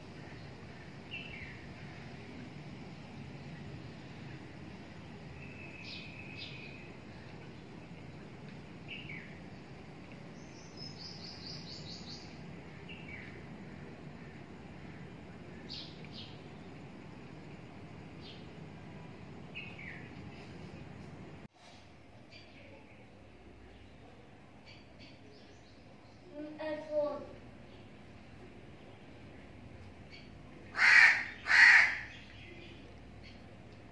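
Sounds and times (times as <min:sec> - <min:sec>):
low background noise: 0:00.0 - 0:33.9
birds chirping: 0:23.6 - 0:33.5.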